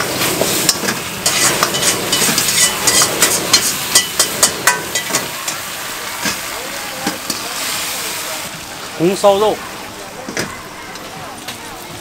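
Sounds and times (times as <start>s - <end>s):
metal ladle scraping a wok: 0.0s - 6.5s
food sizzling in a wok: 0.0s - 12.0s.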